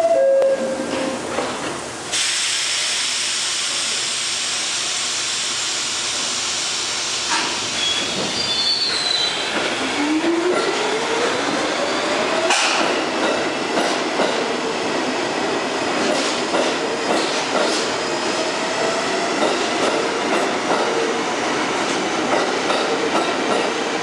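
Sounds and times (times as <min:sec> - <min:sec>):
loud steady hiss: 0:01.9 - 0:07.8
brief high squeals: 0:07.8 - 0:09.5.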